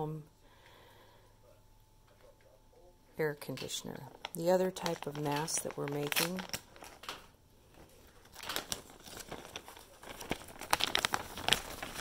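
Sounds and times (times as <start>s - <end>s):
plastic bag crinkling: 3.5s - 12.0s.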